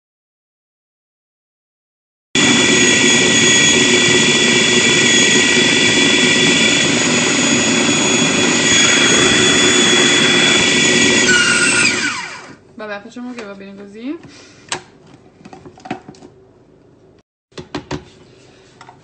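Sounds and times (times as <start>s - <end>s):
food processor motor whining: 2.4s - 12.6s.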